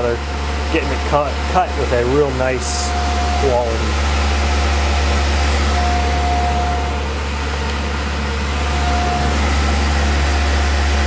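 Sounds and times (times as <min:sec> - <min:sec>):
milling machine hum: 0:00.0 - 0:11.0
thin high tone: 0:02.5 - 0:11.0.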